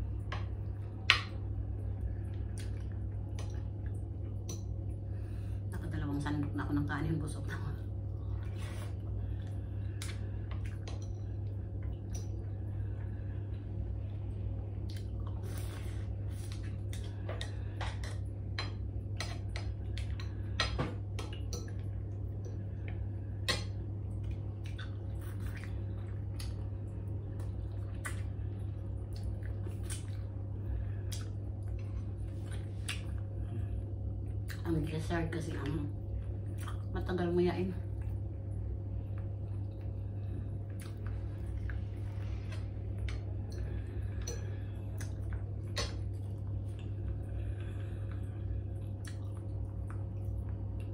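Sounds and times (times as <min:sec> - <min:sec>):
steady low hum: 0:00.0 - 0:50.9
chewing: 0:14.8 - 0:34.6, 0:36.4 - 0:36.9, 0:39.0 - 0:50.9.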